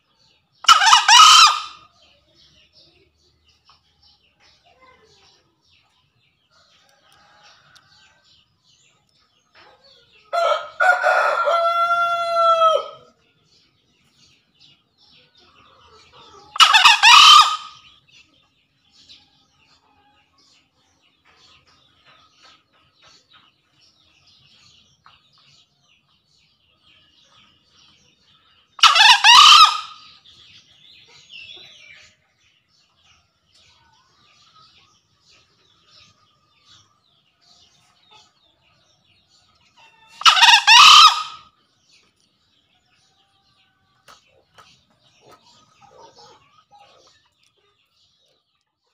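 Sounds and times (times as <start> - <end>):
junglefowl crowing: 0.6 - 1.8, 10.4 - 13.1, 16.5 - 17.8, 28.8 - 30.1, 40.0 - 41.4.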